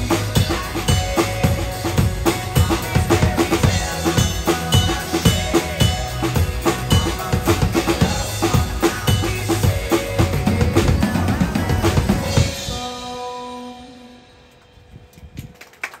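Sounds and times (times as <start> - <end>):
acoustic drum kit playing: 0.0 - 14.6
pop backing track: 0.0 - 14.9
people clapping: 15.1 - 16.0.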